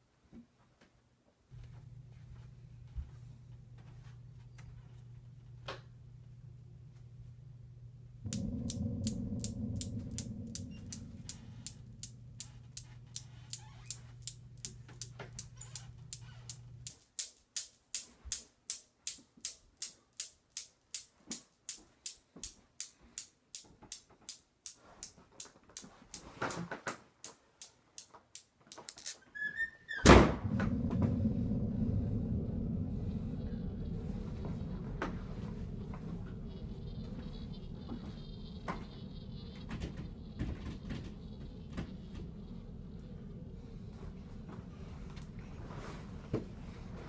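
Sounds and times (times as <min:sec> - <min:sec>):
low droning hum: 0:01.6 - 0:16.9, 0:30.4 - 0:47.0
low rumbling drone: 0:06.6 - 0:14.9, 0:30.4 - 0:47.0
loud crash with rising high tone: 0:30.2 - 0:45.1.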